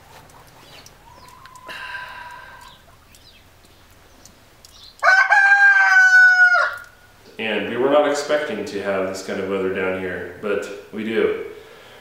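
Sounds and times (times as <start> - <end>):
rooster crowing: 5.0 - 7.0.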